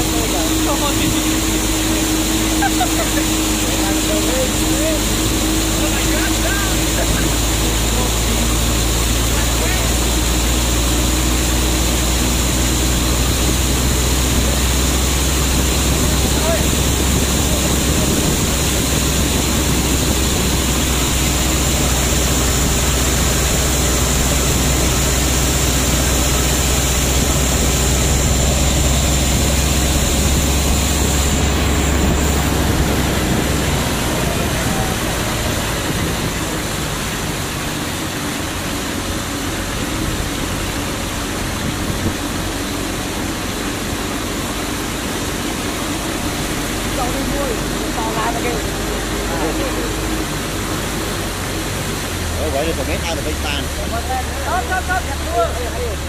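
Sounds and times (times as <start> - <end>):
motorbike engine rumble: 0.0 - 56.0
wind on microphone: 11.6 - 37.3, 39.6 - 43.6.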